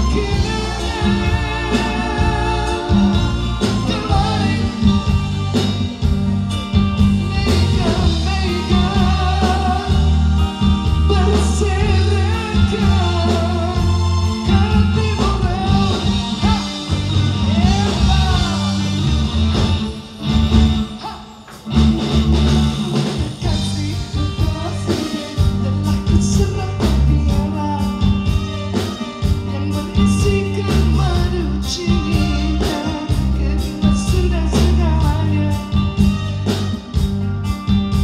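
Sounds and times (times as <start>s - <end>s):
woman singing: 0.0s - 5.7s
drums: 0.0s - 38.0s
electric guitar: 0.0s - 38.0s
keyboard: 0.0s - 38.0s.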